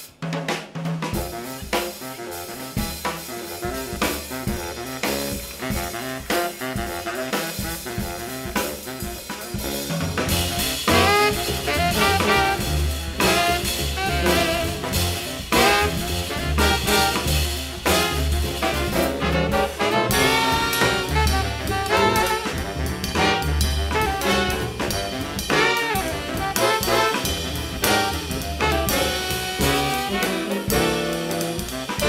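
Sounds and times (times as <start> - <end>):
drum kit: 0.0 - 32.0
jazz band playing: 0.0 - 32.0
horns: 1.1 - 32.0
double bass: 1.2 - 32.0.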